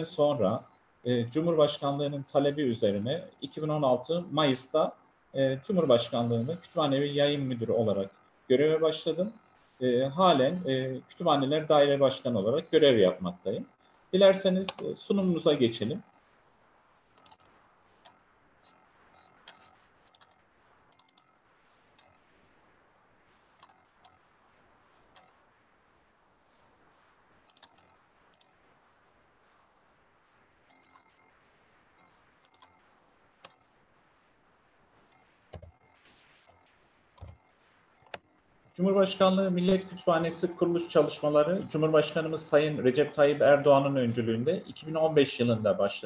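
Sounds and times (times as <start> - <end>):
computer mouse and key clicks: 17.1 - 22.2, 23.5 - 24.2, 25.1 - 25.4, 27.4 - 28.5, 30.7 - 31.3, 32.0 - 32.8, 33.4 - 33.7, 35.1 - 38.4.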